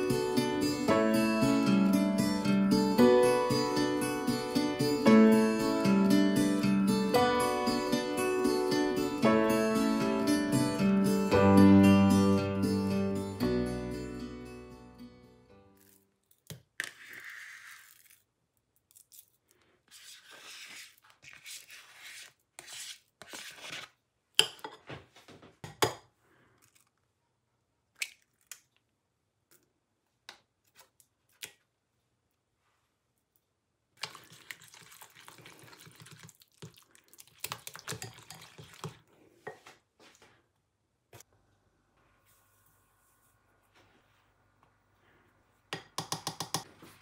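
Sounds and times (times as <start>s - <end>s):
spoon scraping cream cheese: 19.9s - 24.0s
whisk stirring in bowl: 34.0s - 39.0s.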